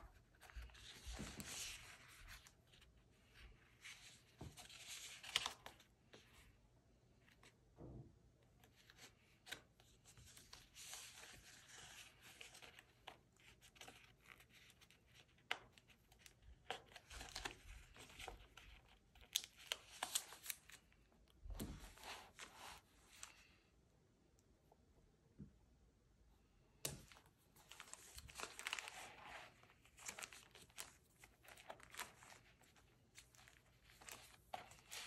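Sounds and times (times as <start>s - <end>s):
tabs peeling and rustling: 10.2s - 20.8s, 26.8s - 35.0s.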